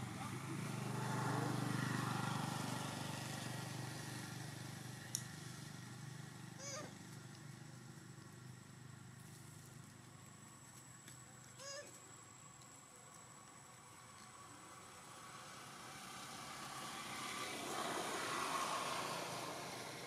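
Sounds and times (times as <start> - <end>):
passing vehicle engine hum: 0.0 - 10.6, 13.3 - 20.0.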